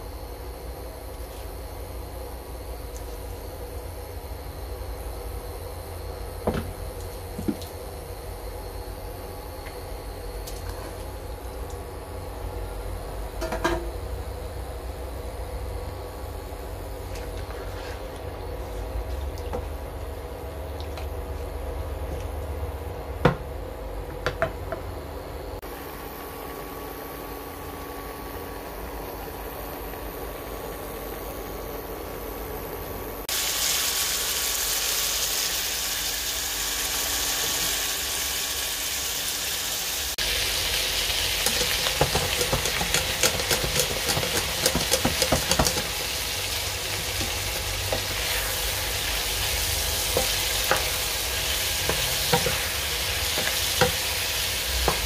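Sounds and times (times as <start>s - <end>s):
pork sizzling in a pan: 33.3s - 55.0s
clattering and scraping of stirring: 41.4s - 46.2s, 51.8s - 52.7s
spatula knocking on pan: 41.9s - 46.0s.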